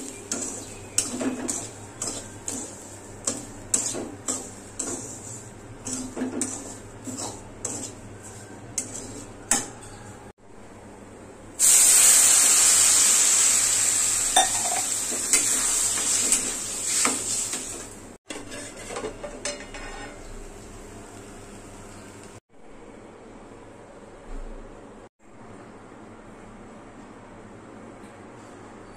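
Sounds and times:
metal spatula scraping a pan: 0.0 - 10.3, 14.6 - 20.3
water hissing in a hot pan: 11.6 - 17.8.

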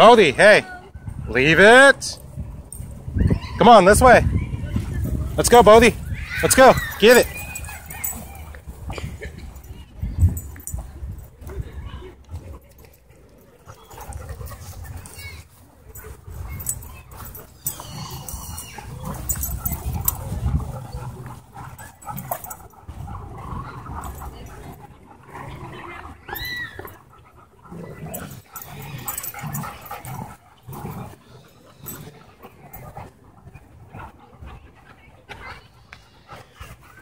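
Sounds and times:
dogs scuffling: 12.3 - 25.0, 27.7 - 33.2
dog whining: 16.6 - 20.2, 26.2 - 27.0, 27.9 - 30.2
dogs short vocal sounds: 16.6 - 24.7.

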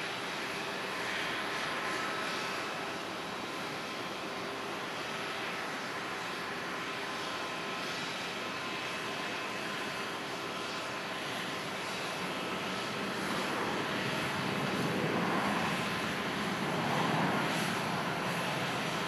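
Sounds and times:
jet engines rushing: 0.0 - 19.0.

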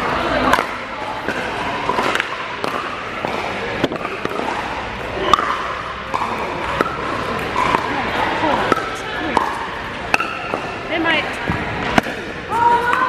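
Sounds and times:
people talking: 0.0 - 13.0
paddles hitting plastic ball: 0.4 - 10.8.

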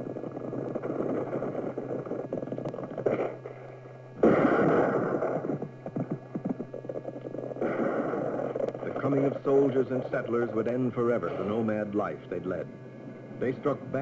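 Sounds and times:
horses galloping: 0.0 - 3.8, 4.5 - 11.0.

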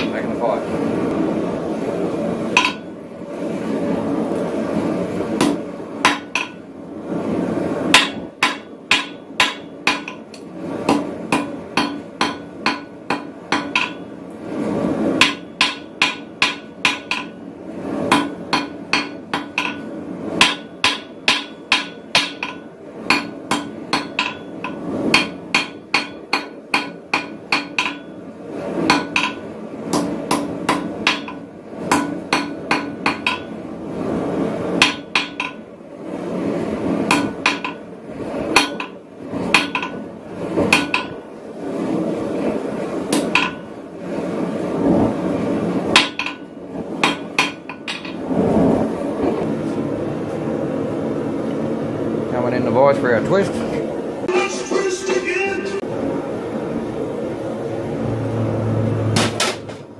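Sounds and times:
hammer striking steel on anvil: 2.6 - 2.9, 5.4 - 6.6, 7.9 - 14.1, 15.2 - 17.4, 18.1 - 28.2, 28.9 - 33.6, 34.8 - 35.6, 37.1 - 37.8, 38.5 - 40.0, 40.7 - 41.2, 43.1 - 43.7, 45.9 - 48.2.

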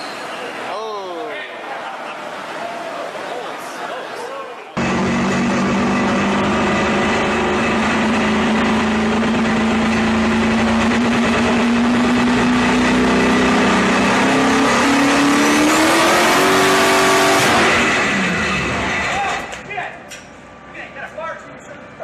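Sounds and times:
truck engine droning on dynamometer: 4.8 - 19.5.

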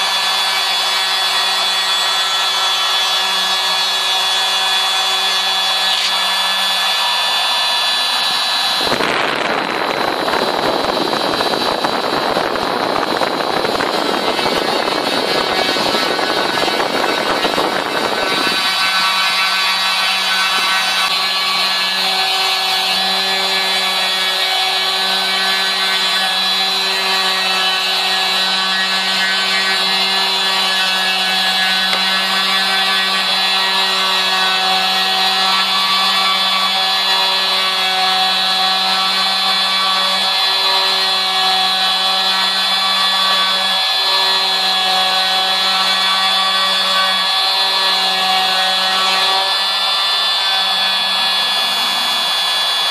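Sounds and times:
router spindle whine: 0.0 - 52.9.

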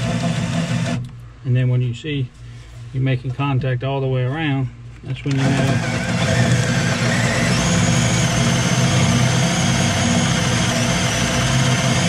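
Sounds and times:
cordless drill boring into plywood: 0.0 - 1.1, 5.3 - 12.0.

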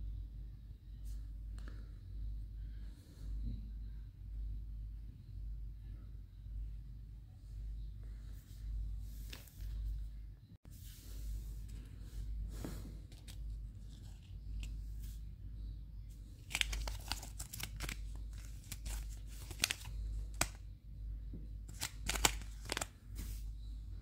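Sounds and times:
plastic packet crinkling: 16.4 - 20.6, 21.7 - 22.9.

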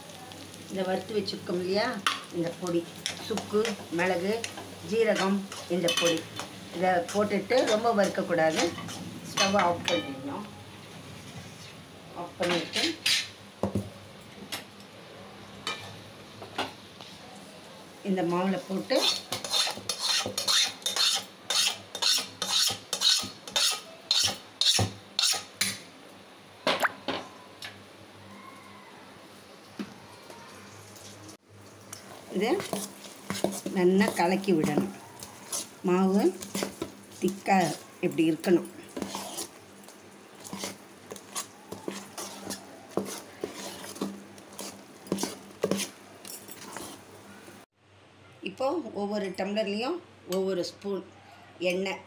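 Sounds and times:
hand stirring thick batter: 3.0 - 10.1, 18.9 - 25.5, 31.9 - 47.2
steel spoon scraping metal pan: 3.0 - 10.2, 12.4 - 13.3, 18.8 - 25.5, 32.4 - 37.9, 38.8 - 39.5, 40.4 - 47.0.

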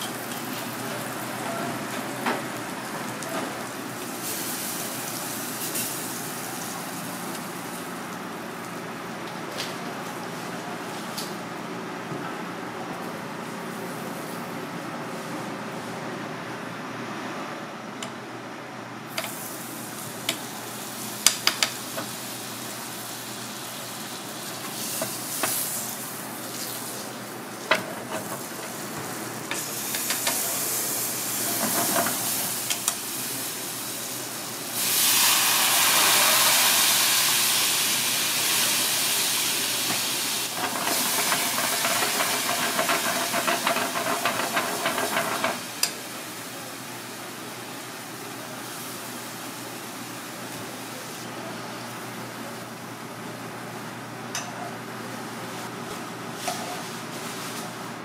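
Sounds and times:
hot oil sizzling in a pan: 2.6 - 7.8, 19.2 - 49.8
crackling oil spatters: 40.5 - 45.6.

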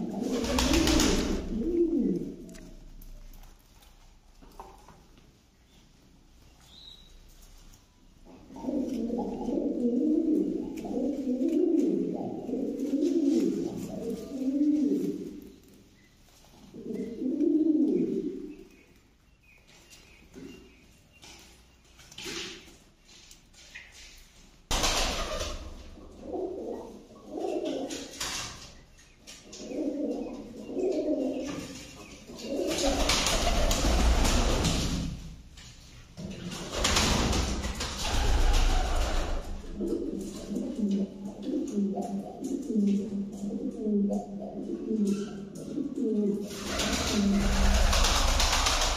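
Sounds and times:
pigeons cooing: 0.0 - 3.3, 8.2 - 15.6, 16.6 - 18.8, 25.0 - 35.0, 37.8 - 48.9.

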